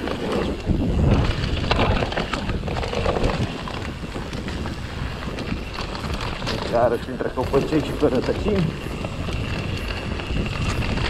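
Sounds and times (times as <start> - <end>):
bike clicks and knocks: 0.0 - 11.0
bike tyres on dirt: 0.0 - 11.0
wind buffeting microphone: 0.0 - 11.0.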